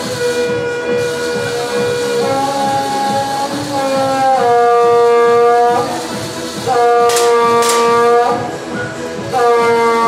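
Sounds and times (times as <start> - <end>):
air pistol shots: 7.1 - 8.1.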